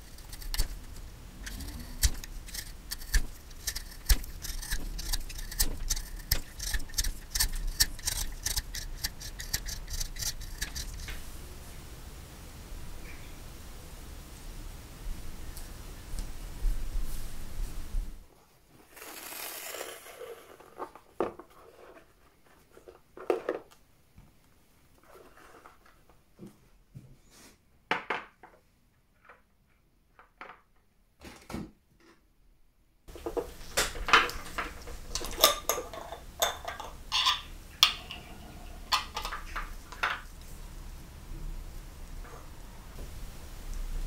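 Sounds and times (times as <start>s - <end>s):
small metal parts clicking: 0.0s - 11.1s
faint background hum: 0.0s - 44.0s.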